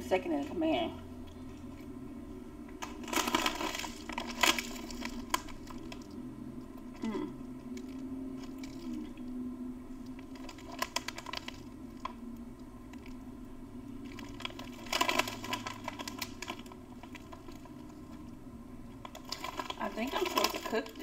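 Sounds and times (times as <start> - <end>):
plastic wrappers crinkling: 2.8 - 6.2, 6.9 - 9.4, 10.0 - 12.2, 14.0 - 18.3, 19.0 - 21.0.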